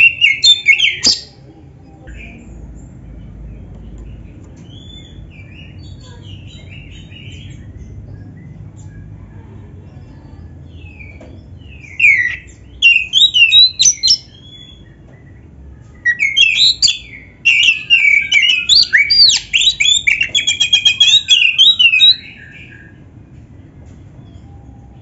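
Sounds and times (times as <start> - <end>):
bird whistling and chirping: 0.0 - 1.4, 11.8 - 15.0, 16.1 - 23.0
low steady hum: 0.0 - 25.0.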